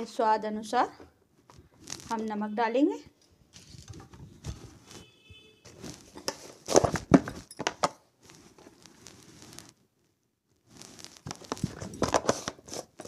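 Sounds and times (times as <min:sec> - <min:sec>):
soft rustling: 0:01.3 - 0:02.4, 0:03.4 - 0:07.5, 0:08.2 - 0:09.8, 0:10.5 - 0:13.0.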